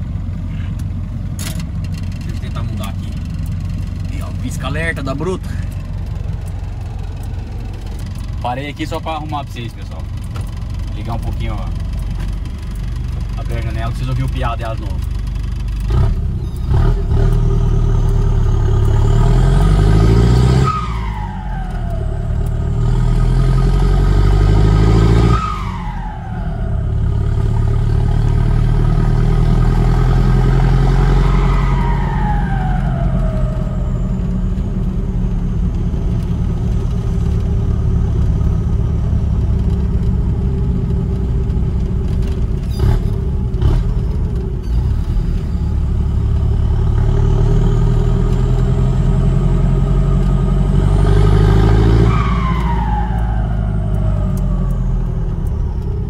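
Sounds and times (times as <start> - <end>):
diesel engine revving: 0.0 - 56.0
turbo whistle: 20.5 - 22.4, 25.2 - 27.1, 31.0 - 34.4.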